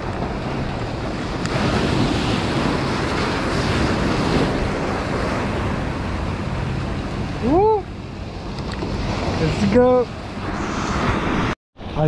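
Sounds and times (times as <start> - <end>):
waves washing over stone: 0.0 - 6.6.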